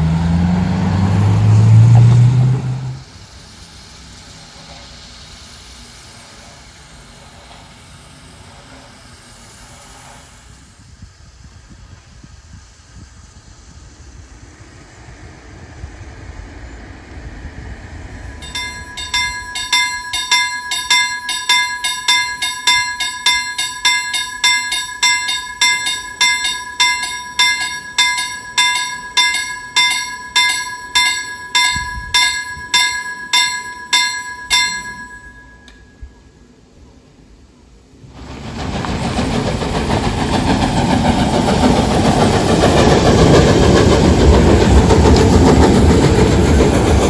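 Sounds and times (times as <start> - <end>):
level crossing warning bell: 18.2 - 36.3.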